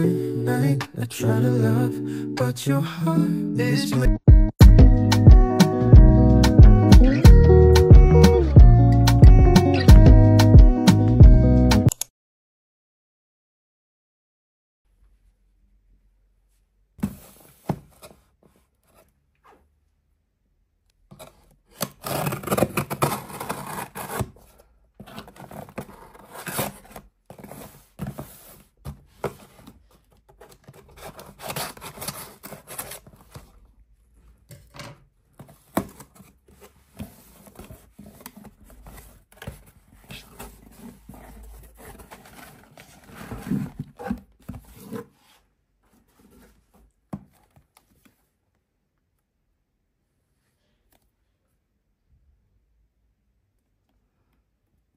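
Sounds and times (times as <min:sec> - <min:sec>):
box scraping on wooden table: 0:21.2 - 0:29.7, 0:35.4 - 0:46.8
plastic wrapped box rustling: 0:22.0 - 0:34.3, 0:35.4 - 0:46.7.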